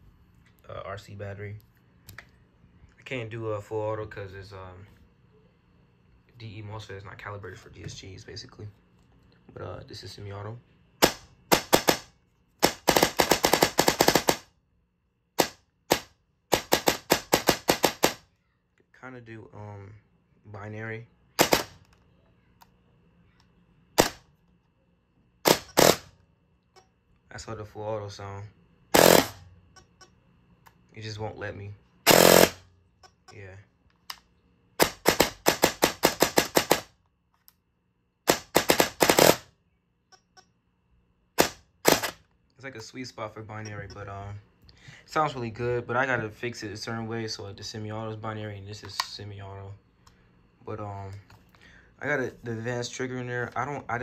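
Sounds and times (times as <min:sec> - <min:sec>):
airsoft rifle shots: 0:11.0 - 0:14.6, 0:15.4 - 0:18.3, 0:21.4 - 0:21.8, 0:24.0 - 0:24.3, 0:25.4 - 0:26.1, 0:28.9 - 0:29.4, 0:32.0 - 0:32.7, 0:34.8 - 0:37.0, 0:38.2 - 0:39.5, 0:41.4 - 0:42.2.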